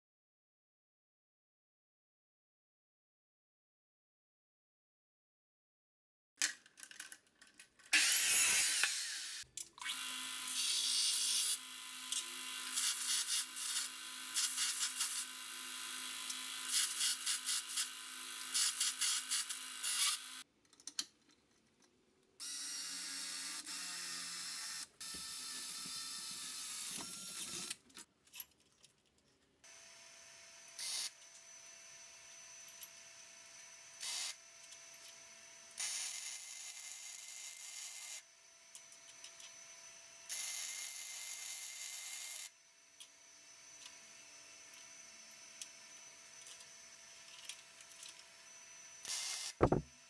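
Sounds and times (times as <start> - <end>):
abrasive chop saw cutting steel: 7.9 - 20.4
bench power tool running: 7.9 - 20.4.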